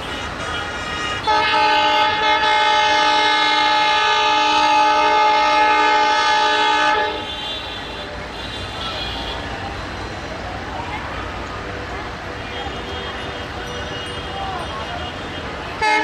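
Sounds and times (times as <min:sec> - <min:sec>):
locomotive air horn blast: 0:00.0 - 0:09.5, 0:15.4 - 0:16.0.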